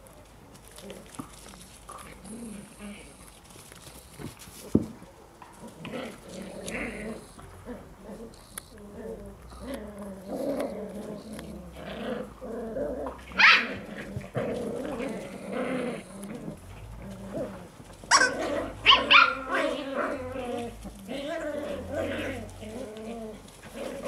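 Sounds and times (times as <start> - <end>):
puppies growling in play: 0.6 - 4.7, 5.4 - 24.0
puppies yipping: 18.1 - 20.4.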